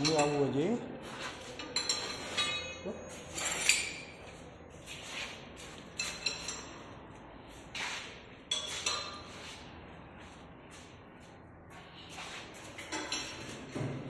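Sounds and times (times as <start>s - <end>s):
metallic clinks with ringing: 1.6s - 4.1s.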